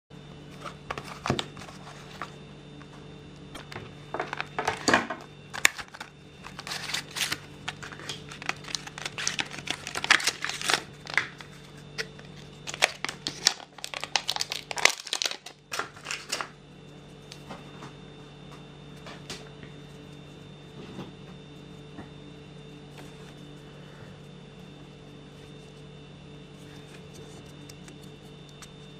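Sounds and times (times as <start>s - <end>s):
plastic bag crinkling: 5.5s - 16.5s.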